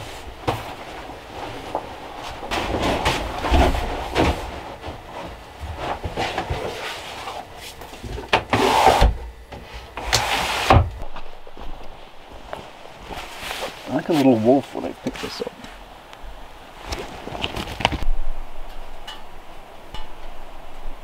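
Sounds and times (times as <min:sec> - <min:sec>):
window sliding and scraping: 0:00.0 - 0:11.0.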